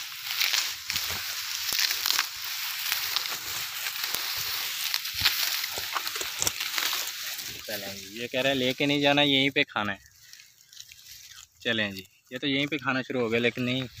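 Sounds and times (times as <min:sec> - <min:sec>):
stems snapping: 0:00.0 - 0:08.8
tall grass rustling: 0:00.0 - 0:14.0.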